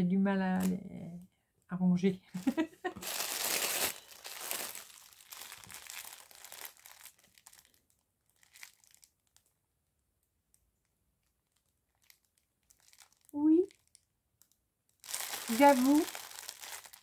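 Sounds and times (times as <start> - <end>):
plastic bag crinkling: 2.4 - 9.5, 11.2 - 17.0.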